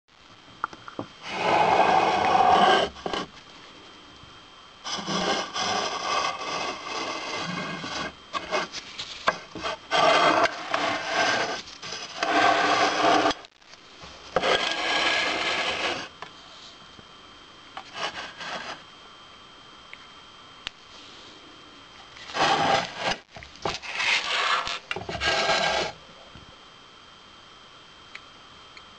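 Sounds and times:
handling rubbing and scraping: 0:01.2 - 0:03.4, 0:04.8 - 0:13.6, 0:14.3 - 0:16.1, 0:17.8 - 0:18.8, 0:22.2 - 0:26.0.

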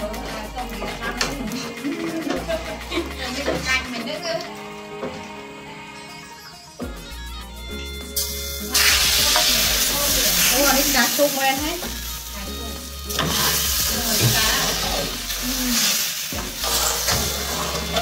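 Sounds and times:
batter sizzling in a wok: 0:08.1 - 0:18.0.

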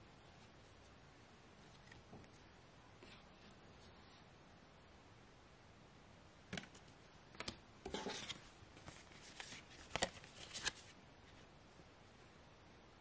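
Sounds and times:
cards sliding rustle: 0:07.3 - 0:11.0.

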